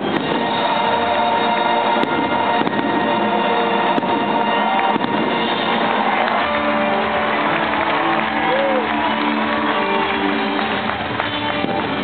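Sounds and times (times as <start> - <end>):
faint firework bangs: 0.0 - 6.6
loud music: 0.0 - 12.0.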